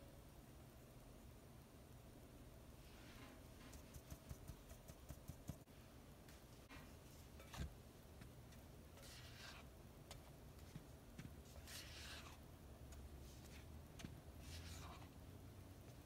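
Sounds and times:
spatula scraping in glass bowl: 0:09.0 - 0:09.7, 0:11.5 - 0:12.4, 0:14.4 - 0:15.1.

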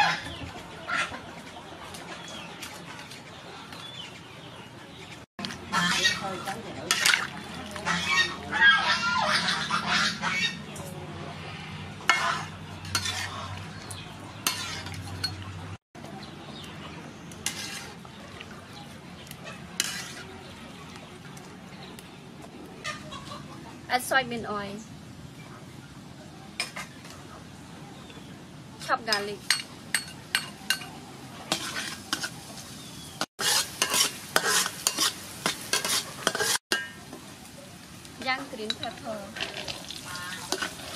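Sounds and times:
metal ladle scraping wok: 0:05.4 - 0:10.8, 0:11.6 - 0:15.6, 0:17.4 - 0:18.1, 0:19.6 - 0:20.4, 0:31.5 - 0:32.5, 0:33.4 - 0:37.1, 0:38.6 - 0:40.9
strainer scraping metal wok: 0:12.1 - 0:13.6, 0:14.4 - 0:15.2, 0:17.4 - 0:18.0, 0:19.8 - 0:20.3, 0:33.4 - 0:36.9, 0:39.3 - 0:40.9
garlic sizzling in hot oil: 0:17.4 - 0:18.0, 0:19.8 - 0:20.3, 0:31.5 - 0:40.9.

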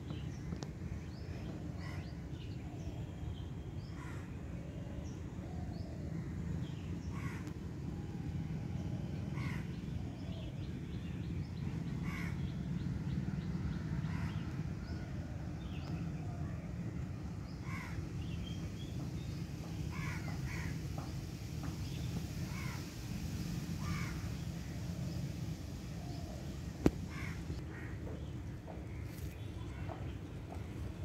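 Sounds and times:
steady low rumble: 0:00.0 - 0:31.0
harsh caw-like bird calls: 0:04.0 - 0:04.3, 0:07.1 - 0:07.6, 0:09.4 - 0:09.7, 0:12.0 - 0:12.4, 0:14.0 - 0:14.5, 0:17.6 - 0:18.0, 0:19.8 - 0:21.1, 0:22.3 - 0:23.1, 0:23.8 - 0:24.8, 0:26.0 - 0:28.1.

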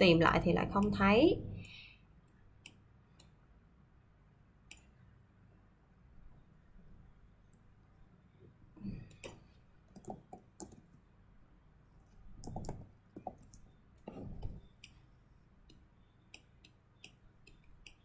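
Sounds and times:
mouse and keyboard clicking: 0:12.4 - 0:15.0.

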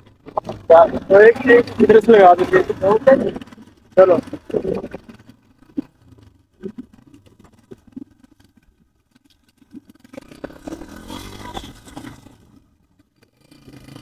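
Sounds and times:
motorcycle engine running: 0:00.0 - 0:14.0
motorcycle scraping on gravel: 0:09.2 - 0:14.0.

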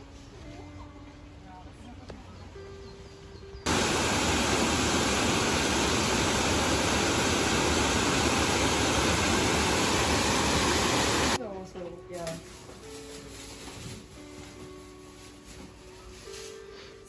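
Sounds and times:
water rushing over a weir: 0:03.7 - 0:11.4.

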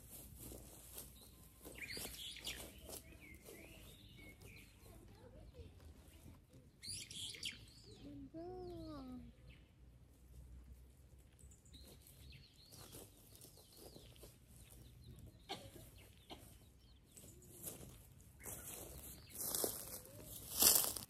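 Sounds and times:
footsteps: 0:00.0 - 0:06.7, 0:11.7 - 0:21.0
bird chirps and calls: 0:01.1 - 0:09.7, 0:11.4 - 0:20.9.

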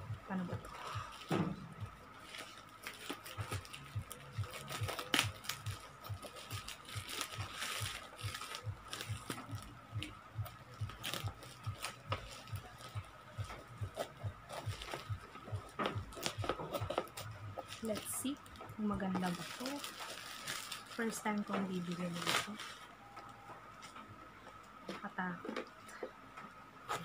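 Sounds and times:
plastic crinkling: 0:00.4 - 0:23.9
scissors snipping plastic: 0:02.3 - 0:09.7, 0:10.9 - 0:18.1.

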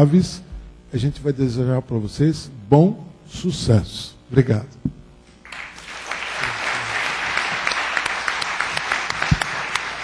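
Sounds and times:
audience applauding: 0:05.4 - 0:10.0.

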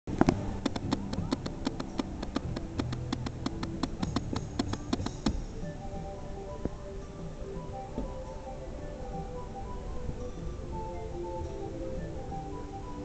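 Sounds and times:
faint music: 0:00.1 - 0:13.0
rapid percussive taps: 0:00.2 - 0:05.4.

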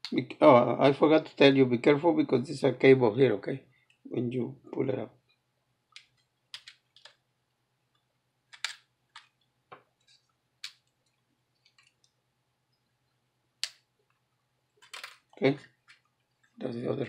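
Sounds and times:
small clicks of plastic parts: 0:05.9 - 0:07.2, 0:08.5 - 0:12.2.

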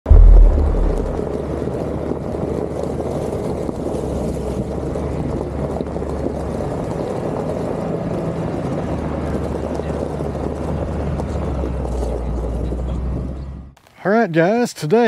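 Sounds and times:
loud low thump: 0:00.1 - 0:01.4
utility vehicle engine droning: 0:00.1 - 0:13.8.

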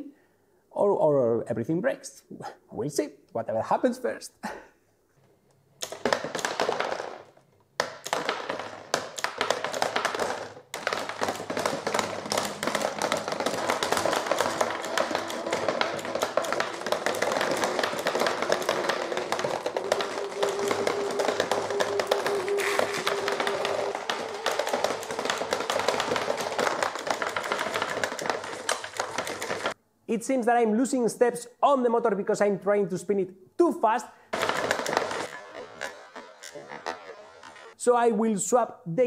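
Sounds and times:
marbles clacking on a conveyor: 0:05.8 - 0:29.8.

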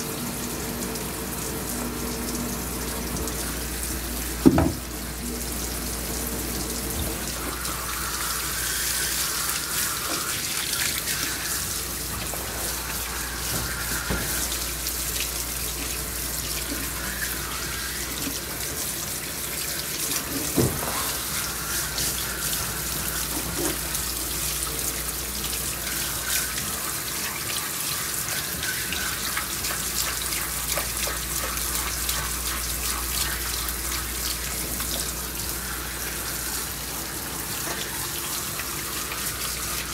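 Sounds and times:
short knock: 0:04.4 - 0:04.8
hose water spraying and splashing: 0:05.8 - 0:39.9.

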